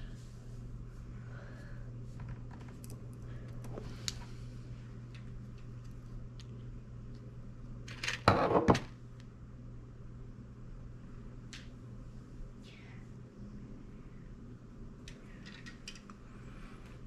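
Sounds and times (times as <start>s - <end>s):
steady low hum: 0.0s - 17.0s
small parts clicking and handling: 15.0s - 16.2s.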